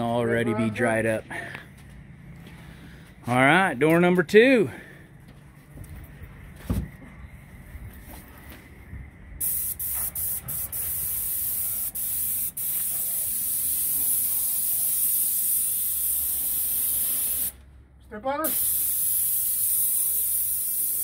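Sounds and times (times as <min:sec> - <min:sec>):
paint sprayer hissing: 0:09.4 - 0:17.6, 0:18.5 - 0:21.0.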